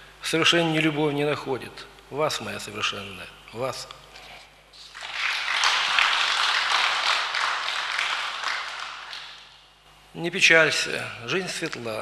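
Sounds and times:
audience applauding: 0:04.8 - 0:09.6.

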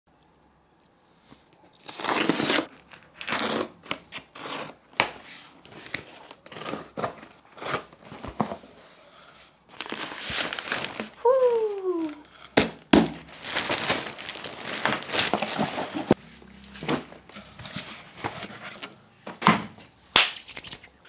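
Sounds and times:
packing tape and cardboard ripping: 0:01.8 - 0:08.6, 0:09.7 - 0:16.2
packing paper rustling: 0:09.7 - 0:18.9.

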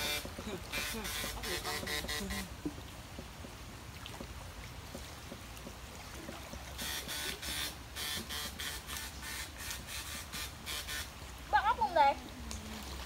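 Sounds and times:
electrofishing shocker buzzing: 0:00.0 - 0:02.5, 0:06.8 - 0:11.1.

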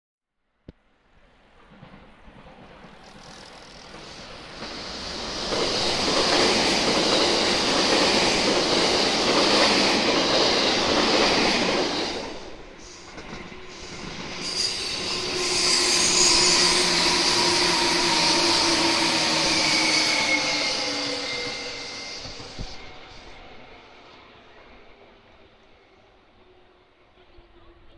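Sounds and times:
train wheels on rails: 0:01.1 - 0:25.9
train motor whining: 0:02.9 - 0:04.4.

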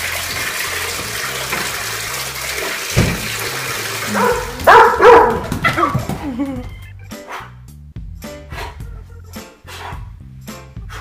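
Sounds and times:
water pouring from tap into tub: 0:00.0 - 0:04.7
thump: 0:02.9 - 0:03.4
dog barking: 0:04.1 - 0:05.9, 0:07.2 - 0:07.5.

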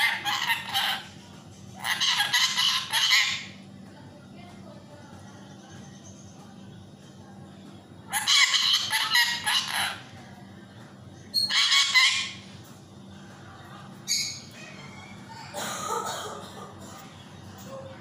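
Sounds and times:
parakeet squawking: 0:00.0 - 0:01.2, 0:01.8 - 0:03.6, 0:08.1 - 0:10.1, 0:11.4 - 0:12.5.

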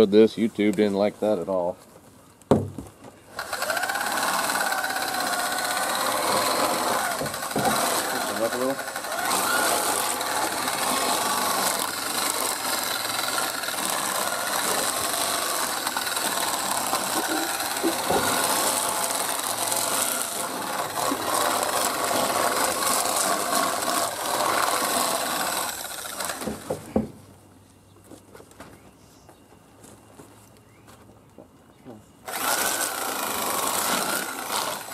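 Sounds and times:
knocks: 0:02.5 - 0:02.9
chicken plucker whirring: 0:03.3 - 0:26.7, 0:32.2 - 0:34.9.

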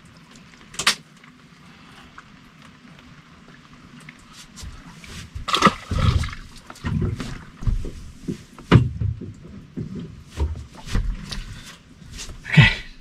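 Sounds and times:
thumps and knocks on boat deck: 0:05.4 - 0:11.3.

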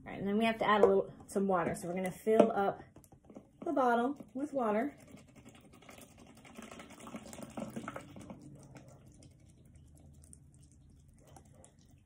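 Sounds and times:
water trickling into plastic bottle: 0:03.2 - 0:12.0.

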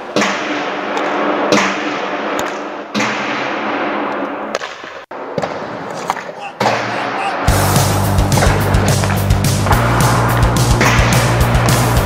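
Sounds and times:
hockey pucks shot on concrete: 0:00.1 - 0:06.9.

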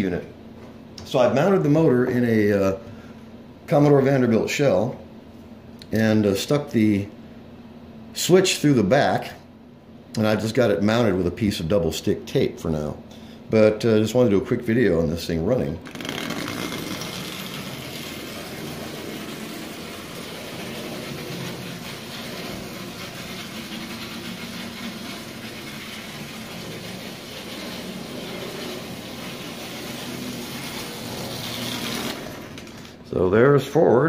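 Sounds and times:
toy train running on track: 0:16.0 - 0:32.8.

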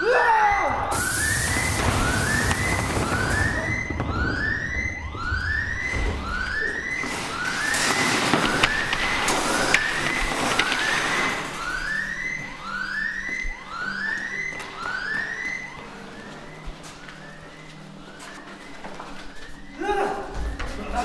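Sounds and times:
rising alarm whoop: 0:00.0 - 0:18.3
metal shelving racks clattering: 0:06.5 - 0:12.1.

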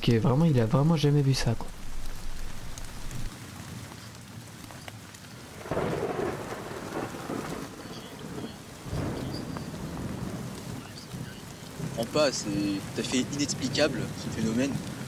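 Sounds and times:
steady rain: 0:00.0 - 0:15.0
rolling thunder: 0:05.6 - 0:15.0.

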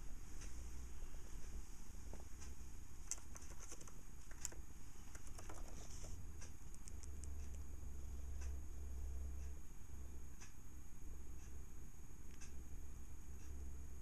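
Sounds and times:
faint low rumble: 0:00.0 - 0:14.0.

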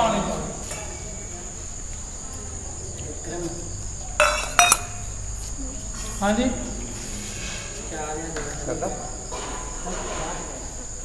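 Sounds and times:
sharp metallic clinks: 0:04.2 - 0:05.2.

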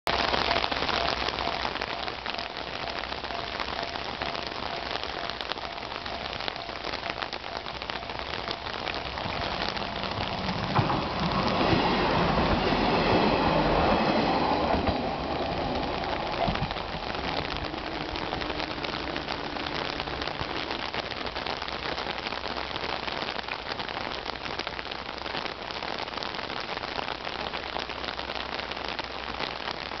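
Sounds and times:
diesel railcar passing: 0:00.1 - 0:21.9
heavy rain hissing: 0:00.1 - 0:30.0.

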